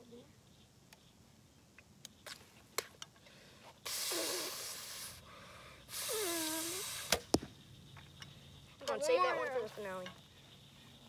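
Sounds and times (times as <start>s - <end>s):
person blowing hard: 3.8s - 5.2s, 5.9s - 7.1s.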